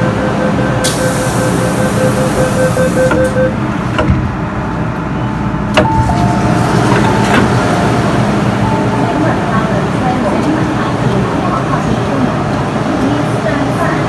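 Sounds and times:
two-pitch warning beeps: 0:00.0 - 0:03.6
train low hum: 0:00.0 - 0:14.0
sliding doors shutting clunk: 0:05.7 - 0:07.7.

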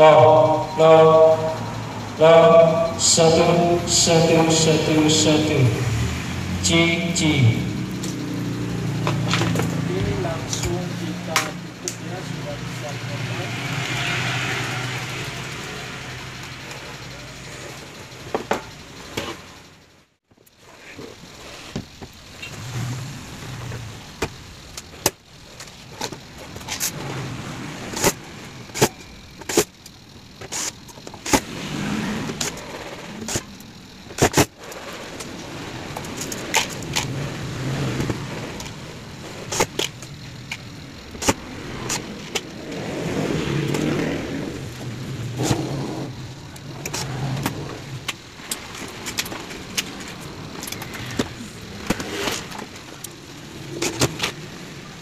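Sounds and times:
low hum: 0:00.0 - 0:20.2.

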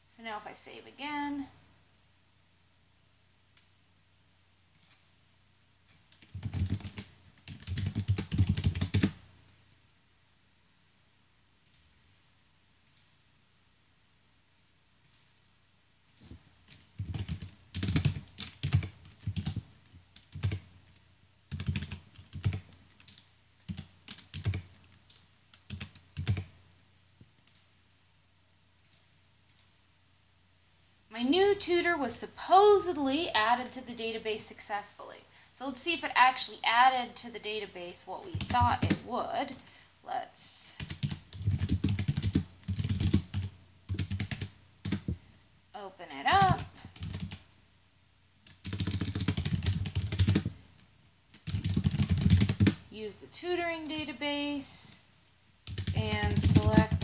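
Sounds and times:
typing on a computer keyboard: 0:05.9 - 0:09.2, 0:16.1 - 0:26.5, 0:27.4 - 0:27.7, 0:38.3 - 0:39.0, 0:40.8 - 0:45.2, 0:46.3 - 0:47.4, 0:48.4 - 0:50.6, 0:51.3 - 0:52.8, 0:55.6 - 0:57.0.

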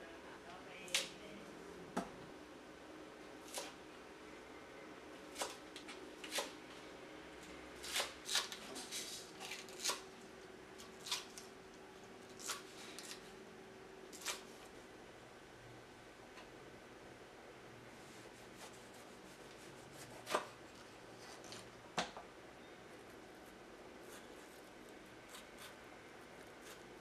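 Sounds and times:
knife chopping on wooden board: 0:20.0 - 0:20.6.

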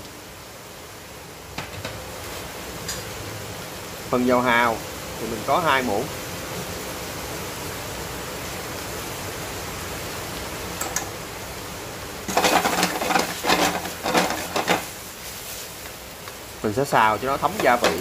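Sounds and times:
food sizzling in a frying pan: 0:00.0 - 0:18.0
food stirred scraping in pan: 0:12.3 - 0:16.0, 0:17.4 - 0:18.0.

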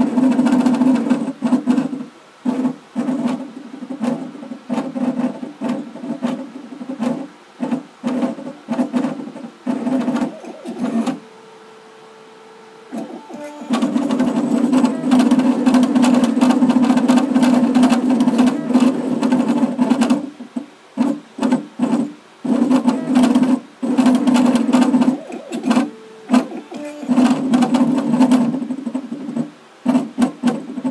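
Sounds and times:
engraving machine buzzing: 0:09.8 - 0:19.3, 0:24.1 - 0:27.8.

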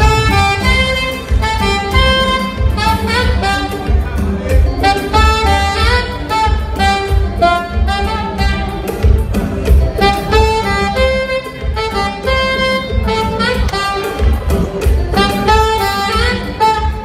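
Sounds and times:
pulsing bass line: 0:00.0 - 0:17.0
saxophone melody: 0:00.0 - 0:17.0.

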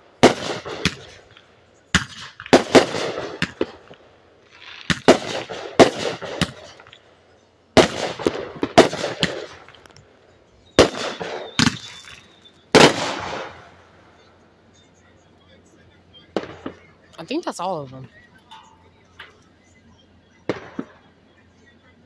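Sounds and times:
fireworks bangs and crackling: 0:00.0 - 0:07.0, 0:07.7 - 0:10.1, 0:10.7 - 0:14.3, 0:16.2 - 0:18.2, 0:20.4 - 0:21.8.

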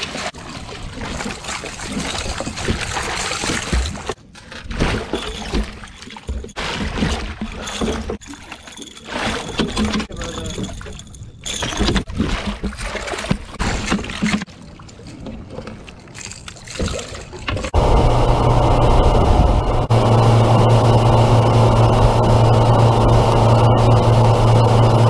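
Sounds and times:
water rushing along hull: 0:00.0 - 0:04.2, 0:12.1 - 0:25.0
outboard motor droning: 0:17.7 - 0:25.0.

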